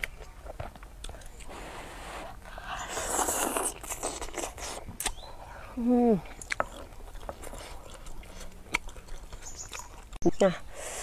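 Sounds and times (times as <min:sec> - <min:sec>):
slurping noodles: 0:01.4 - 0:04.8
wet chewing clicks: 0:02.3 - 0:05.4, 0:06.2 - 0:10.4.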